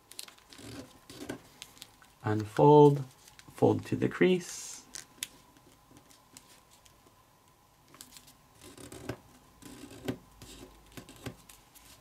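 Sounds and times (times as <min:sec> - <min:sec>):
paper rustling and crinkling: 0:00.0 - 0:03.6, 0:10.9 - 0:12.0.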